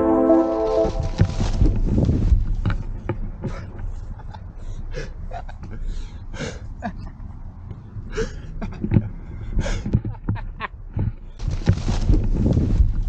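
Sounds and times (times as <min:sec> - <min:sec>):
wind rumble on microphone: 0:00.8 - 0:04.3, 0:06.8 - 0:13.0.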